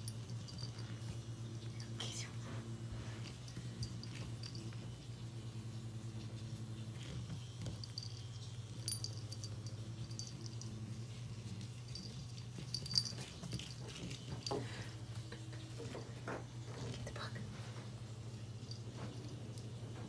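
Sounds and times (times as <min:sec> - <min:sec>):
steady low hum: 0:00.0 - 0:20.0
kitten clicking and scraping on floor: 0:11.4 - 0:15.0.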